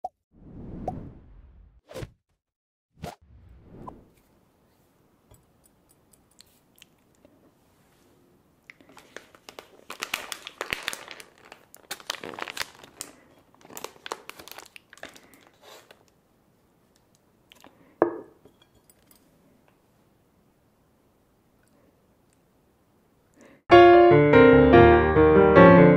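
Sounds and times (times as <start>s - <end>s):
plastic bag crinkling: 8.8s - 16.1s.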